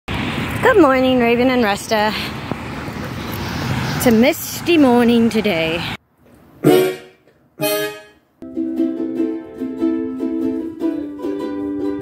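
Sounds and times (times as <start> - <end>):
strummed string instrument: 6.7 - 12.0.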